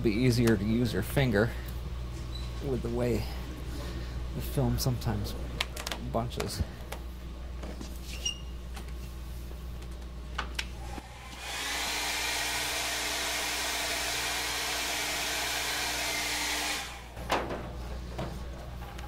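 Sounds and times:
hair dryer blowing air: 10.8 - 17.2.

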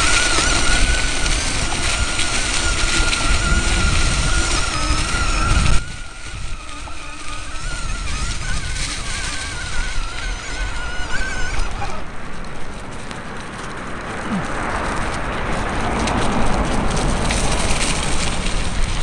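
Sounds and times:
electric motor whining: 0.0 - 13.1
wind noise: 0.0 - 19.0.

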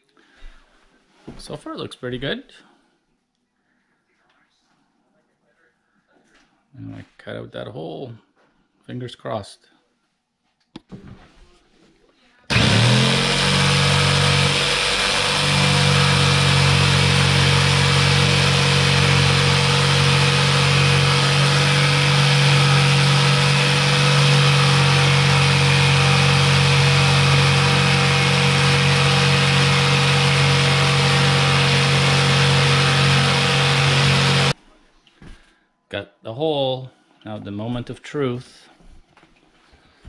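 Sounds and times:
electric saw cutting: 12.5 - 34.6.

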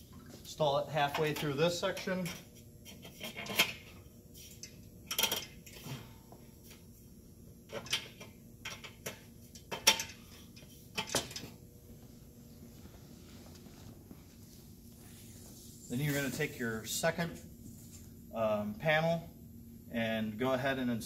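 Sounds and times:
metal clanks and clicks: 4.6 - 5.8.

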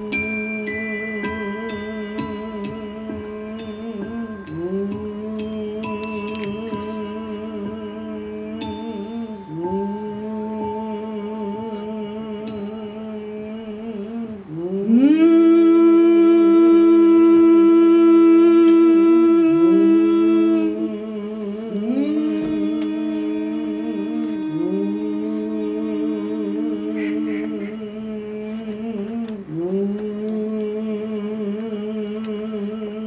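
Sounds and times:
voices humming in harmony: 0.0 - 33.0.

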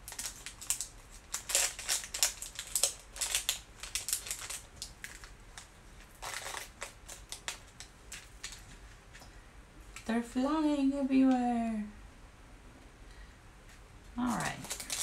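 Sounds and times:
plastic bag crinkling: 0.0 - 8.8, 14.2 - 15.0.

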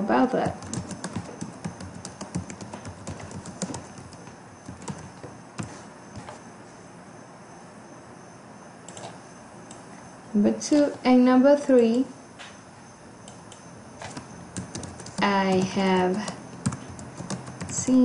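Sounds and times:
computer keyboard typing: 0.4 - 6.3, 8.9 - 9.2, 13.2 - 18.0.

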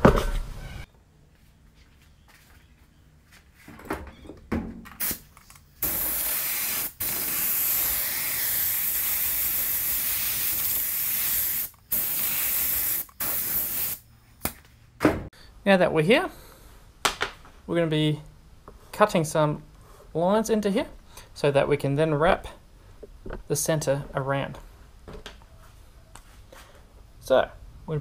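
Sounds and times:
spray gun hissing: 5.8 - 14.0.

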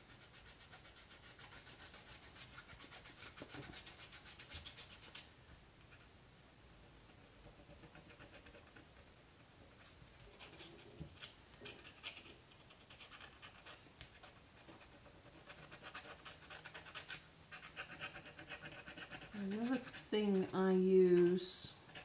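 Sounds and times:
tool scratching paper: 14.7 - 20.6.

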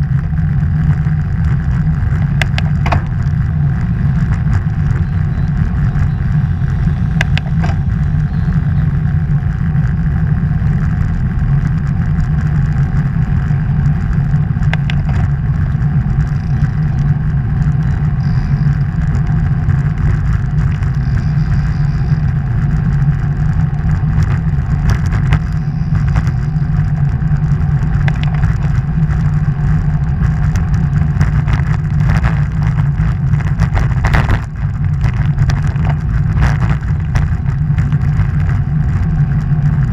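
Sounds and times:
road rumble: 0.0 - 39.9
wind rush: 0.0 - 39.9
sharp clicks and knocks: 2.1 - 6.3, 7.1 - 8.0, 13.8 - 17.9, 22.7 - 29.3.

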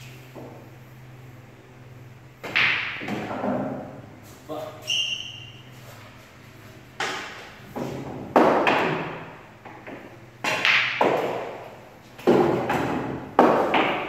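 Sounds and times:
pool balls clacking: 2.4 - 4.0, 6.9 - 14.0.

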